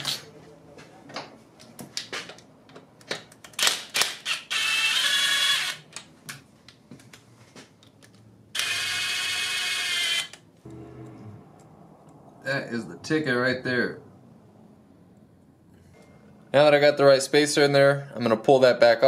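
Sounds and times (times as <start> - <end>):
power tool whirring: 3.6 - 5.8, 8.6 - 11.3.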